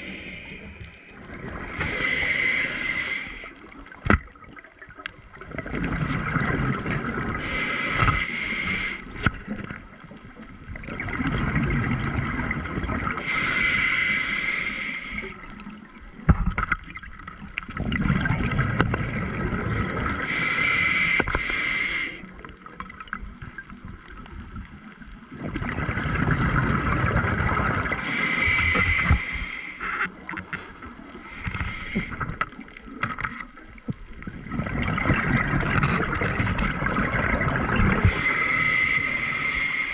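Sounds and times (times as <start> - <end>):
regulator hissing inhalation: 0.0 - 1.1, 1.7 - 3.6, 7.4 - 9.2, 13.2 - 15.4, 20.3 - 22.2, 28.0 - 29.9, 31.2 - 32.2, 38.0 - 39.9
gurgling exhaled bubbles: 4.4 - 8.2, 10.8 - 13.2, 16.8 - 20.3, 25.3 - 29.5, 34.0 - 39.9.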